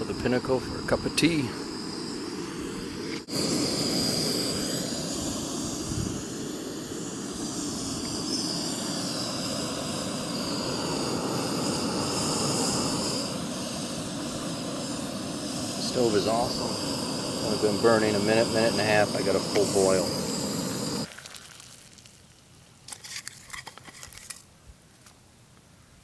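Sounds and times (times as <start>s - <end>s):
gas stove hissing roar: 0.0s - 21.1s
water boiling in pot: 7.1s - 22.5s.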